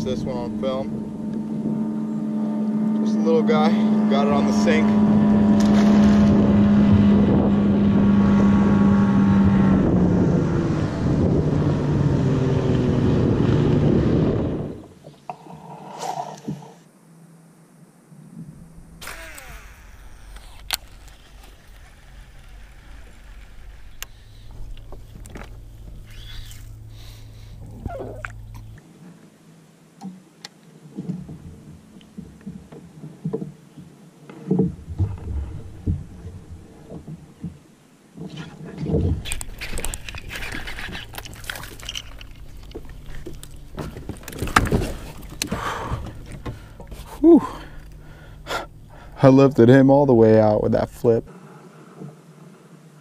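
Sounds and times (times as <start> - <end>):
low wind rumble: 0.0 - 15.1, 17.8 - 28.8, 33.6 - 53.0
rustling grass: 18.5 - 29.1
fishing reel spool whirring: 18.6 - 27.7
water splashing: 19.0 - 28.8, 34.6 - 49.2.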